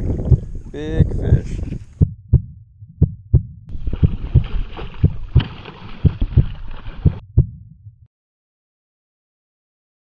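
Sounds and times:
heartbeat double thumps: 0.0s - 8.1s.

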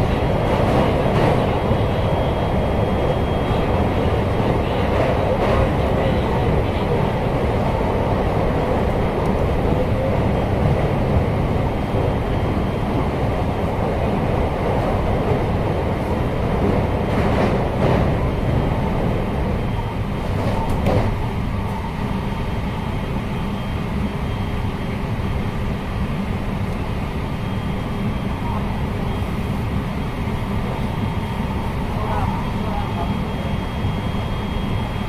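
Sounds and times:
train wheels rumbling on rail: 0.0s - 35.0s
sharp train clatters: 20.2s - 21.2s.

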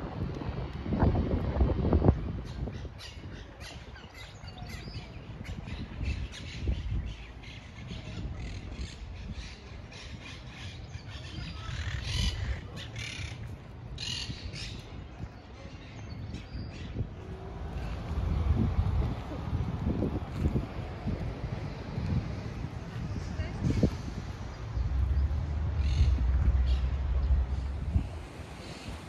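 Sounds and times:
wind rumble on microphone: 0.0s - 29.0s
birds calling and chirping: 2.4s - 18.6s, 23.7s - 27.7s.

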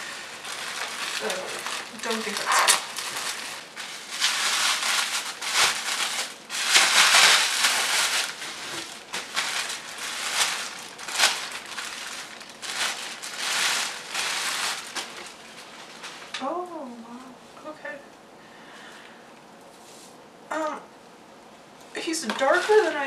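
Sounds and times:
plastic bag crinkling: 0.0s - 16.4s, 22.2s - 23.0s.

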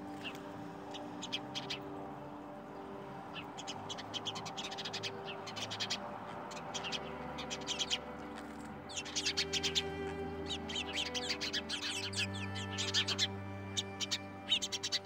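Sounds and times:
soft background music: 0.0s - 15.0s.

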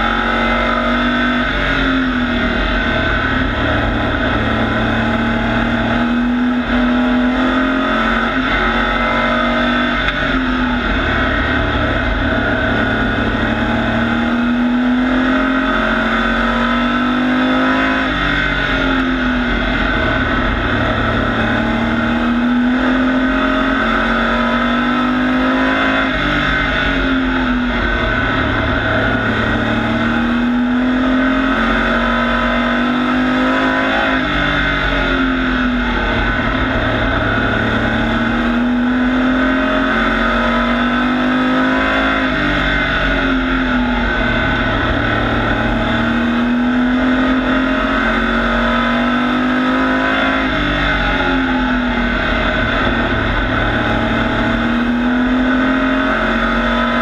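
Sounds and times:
race truck engine at speed: 0.0s - 57.0s.

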